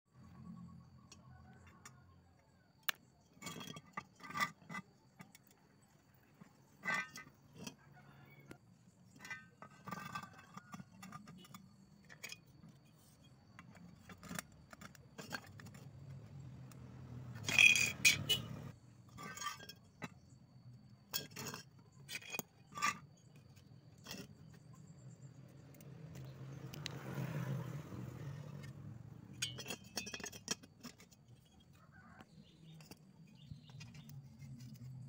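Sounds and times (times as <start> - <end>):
metal tubes clinking: 3.0 - 20.4, 27.4 - 35.0.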